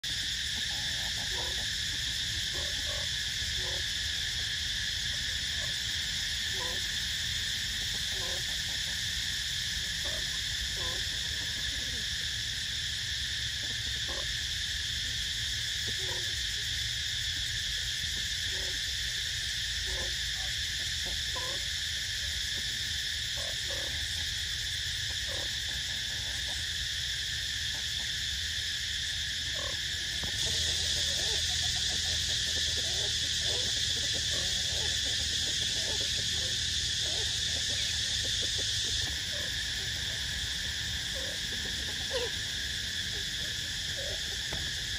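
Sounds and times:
insects chorus: 0:00.0 - 0:44.9.

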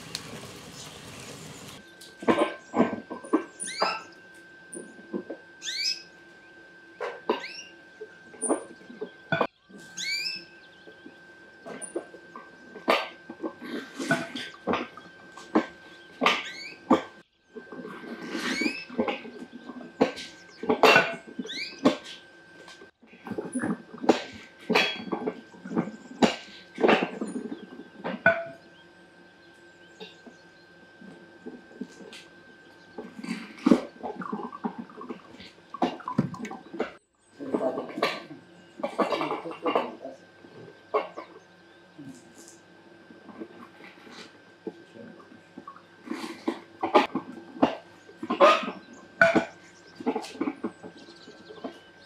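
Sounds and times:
short rising squeaks: 0:18.4 - 0:19.0.

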